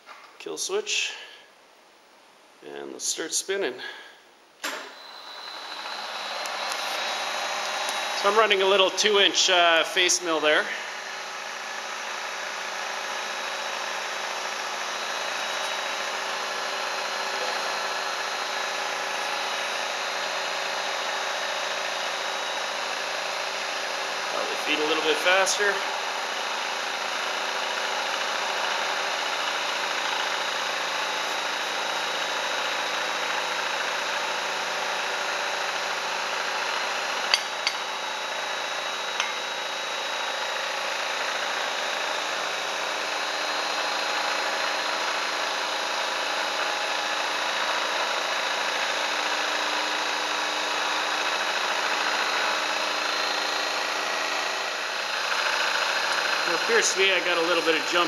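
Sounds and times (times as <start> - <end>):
milling machine cutting: 4.6 - 58.0
spindle motor hum: 4.6 - 58.0.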